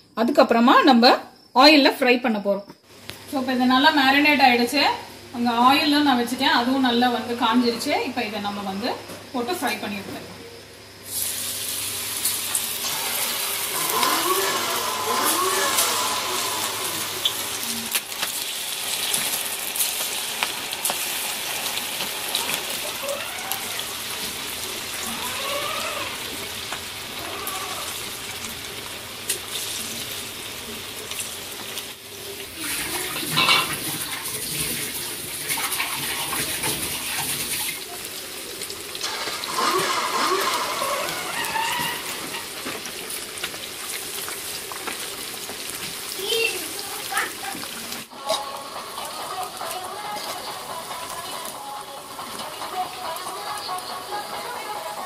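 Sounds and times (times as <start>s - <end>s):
chicken deep-frying in oil: 11.0s - 55.0s.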